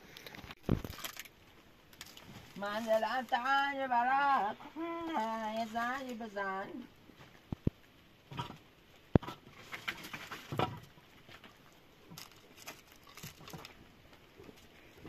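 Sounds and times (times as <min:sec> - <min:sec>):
firewood knocks and scrapes: 0:07.2 - 0:13.8.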